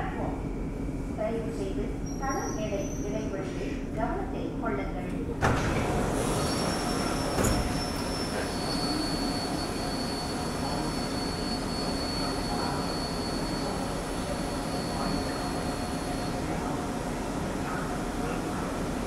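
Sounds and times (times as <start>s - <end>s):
metro train rumbling: 0.0s - 19.0s
train doors opening with a knock: 5.4s - 8.5s.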